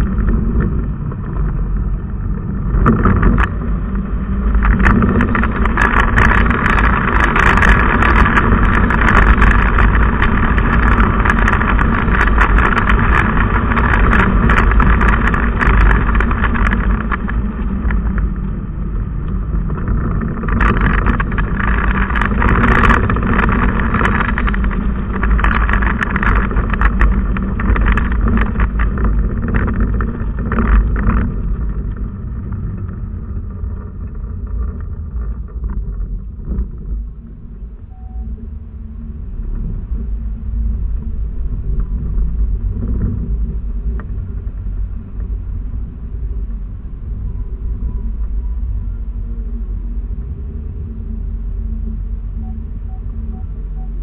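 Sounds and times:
road noise: 0.0s - 54.0s
car engine from inside cabin: 43.8s - 54.0s.

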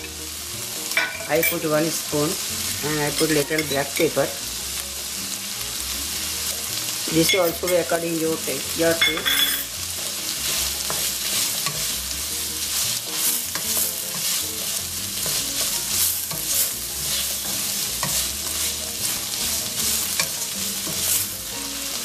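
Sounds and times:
beans sizzling in a skillet: 0.0s - 22.0s
wooden spatula scraping a pan: 9.4s - 21.4s.

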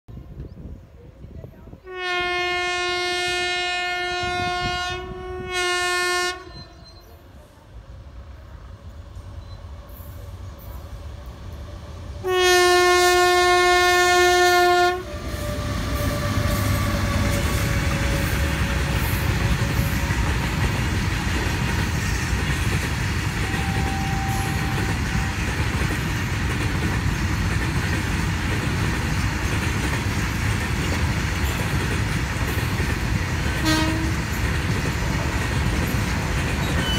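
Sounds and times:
train wheels rumbling on rails: 0.1s - 36.9s
locomotive horn blasts: 1.9s - 7.0s, 12.2s - 17.9s, 23.4s - 25.5s, 33.5s - 34.2s.

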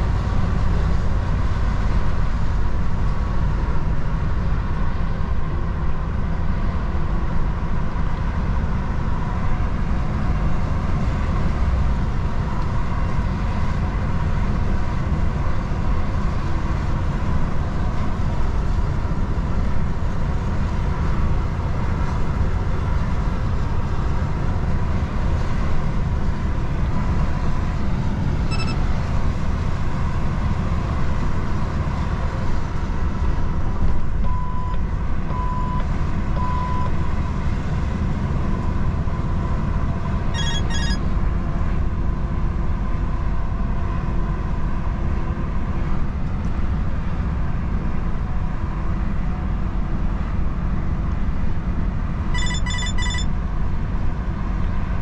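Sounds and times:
truck engine and road rumble: 0.0s - 55.0s
short beeps: 28.5s - 28.9s, 40.4s - 41.0s, 52.4s - 53.3s.

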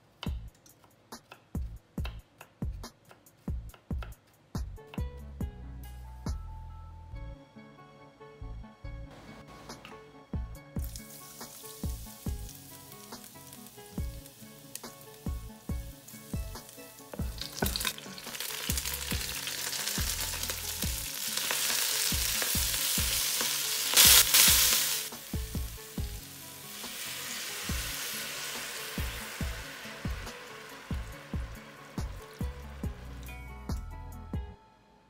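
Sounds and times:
background music with steady beat: 0.0s - 35.0s
greens sizzling in hot oil: 10.8s - 33.4s.

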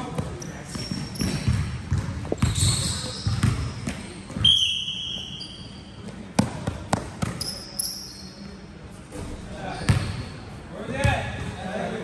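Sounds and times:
basketballs bouncing on gym floor: 0.0s - 4.5s, 6.0s - 7.7s, 9.8s - 10.2s
shoe squeaks: 0.3s - 1.6s, 2.3s - 6.1s, 7.3s - 8.6s.

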